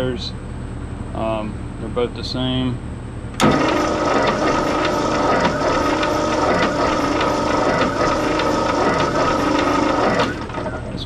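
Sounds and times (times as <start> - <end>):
engine cranking on starter: 3.4 - 11.0.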